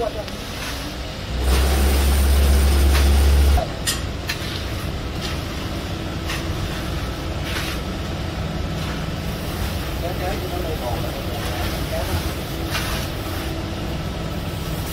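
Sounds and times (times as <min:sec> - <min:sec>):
steady mechanical hum: 0:00.0 - 0:14.9
float scraping wet concrete: 0:04.2 - 0:14.0.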